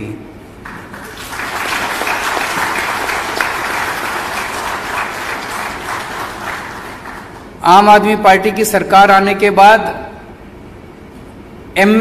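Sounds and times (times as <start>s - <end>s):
audience applauding: 0.6s - 7.6s.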